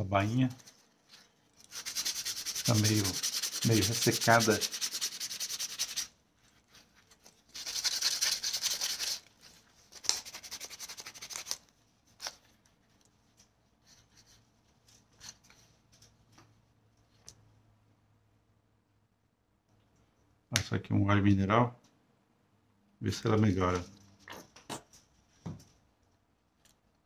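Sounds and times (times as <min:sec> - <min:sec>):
sandpaper rubbing on leather: 0:01.7 - 0:06.1, 0:07.5 - 0:09.3, 0:10.0 - 0:11.6.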